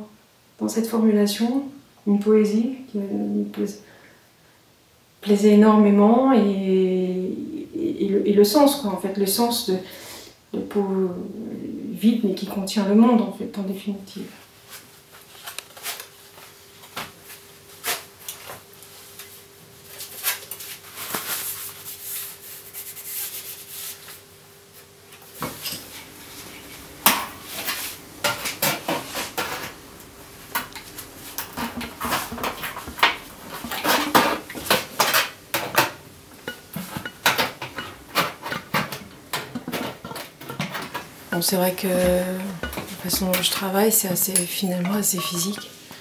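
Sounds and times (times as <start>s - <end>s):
metal tools clinking and scraping: 41.3s - 45.8s.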